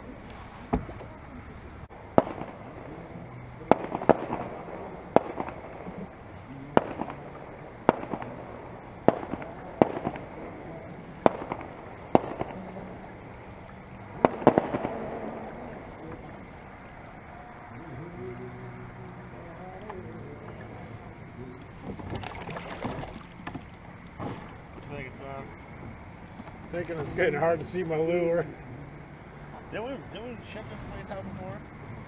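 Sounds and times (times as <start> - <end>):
sharp echoing cracks: 2.1 - 3.0, 3.6 - 17.8.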